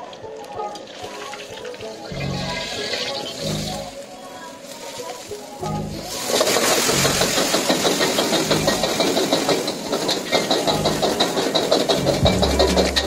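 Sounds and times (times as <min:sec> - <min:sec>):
food sizzling in a wok: 0:00.9 - 0:08.3
flames rushing: 0:04.7 - 0:13.0.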